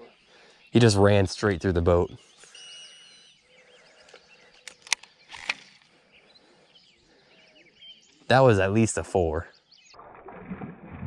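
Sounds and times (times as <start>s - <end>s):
faint bird calls: 2.0s - 9.4s
sharp clicks: 4.0s - 5.9s.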